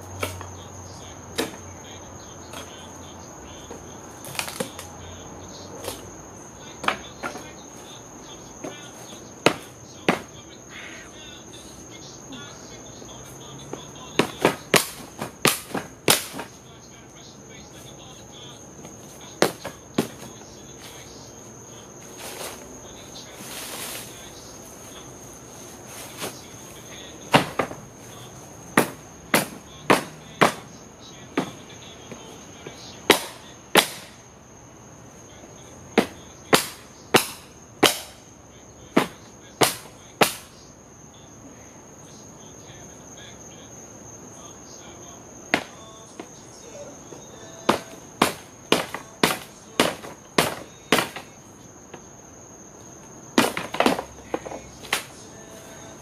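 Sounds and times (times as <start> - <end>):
crickets chirping: 0.0 - 56.0
wooden pallets cracking: 4.2 - 4.9, 14.2 - 16.6, 27.3 - 27.9, 47.7 - 51.4, 53.4 - 55.2.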